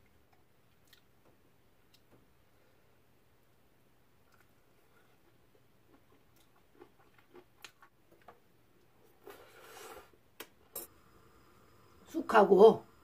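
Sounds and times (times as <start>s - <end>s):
faint chewing: 0.0s - 2.1s, 4.2s - 10.2s.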